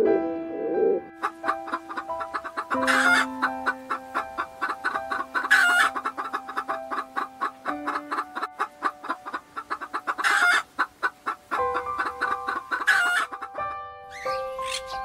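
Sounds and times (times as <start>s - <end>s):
music with held chords: 0.0s - 9.6s
chickens clucking: 0.8s - 15.0s
chicken squawks: 1.2s - 15.0s.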